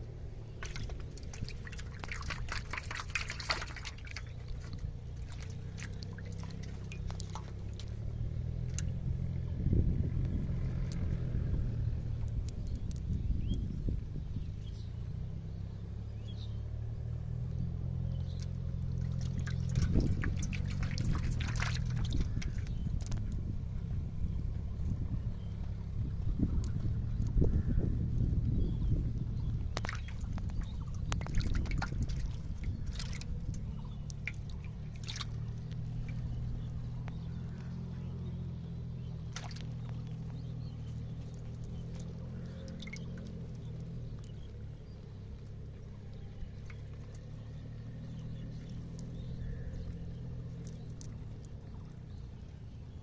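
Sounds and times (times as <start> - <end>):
fish splashing in water: 0.0 - 9.5, 17.9 - 24.8, 28.6 - 53.0
low engine drone: 0.0 - 53.0
steady low hum: 0.0 - 53.0.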